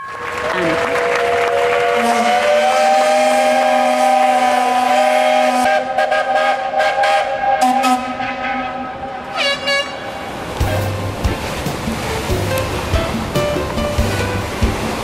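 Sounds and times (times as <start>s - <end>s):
ships' steam whistles and horns: 0.0s - 10.8s.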